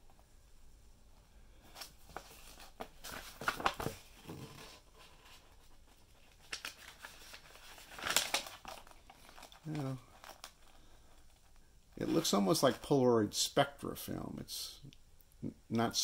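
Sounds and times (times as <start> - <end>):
paper pages rustling: 1.7 - 12.9.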